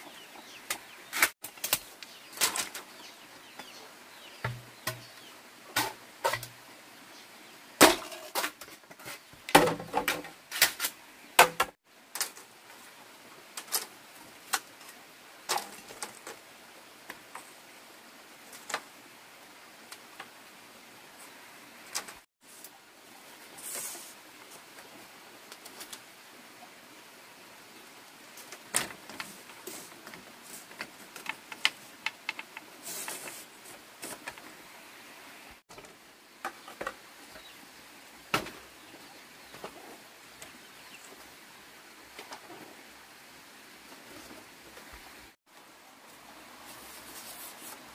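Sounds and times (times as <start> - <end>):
machete striking bamboo: 7.8 - 8.5
short rustle: 32.8 - 34.4, 46.6 - 47.9.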